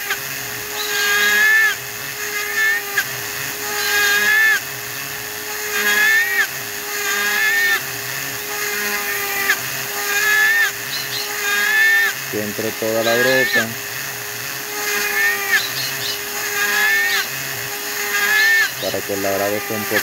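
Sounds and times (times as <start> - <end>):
high whine of cutting: 0.0 - 20.0
rotary tool motor hum: 0.0 - 20.0.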